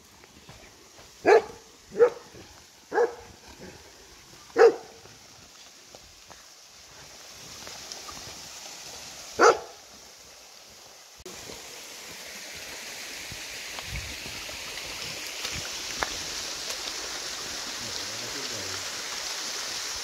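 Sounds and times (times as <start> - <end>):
waterfall and stream rushing: 0.0 - 20.0
dog barking: 1.2 - 3.8, 4.5 - 5.1, 9.4 - 9.8.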